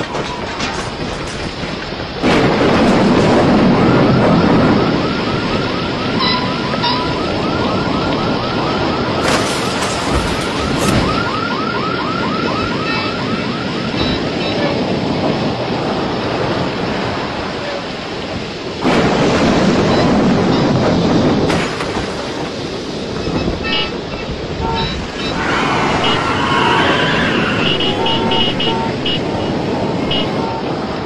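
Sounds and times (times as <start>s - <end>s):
strong wind roaring: 0.0s - 31.0s
fast warbling alarm tone: 3.6s - 9.4s, 10.3s - 14.6s, 23.2s - 30.7s.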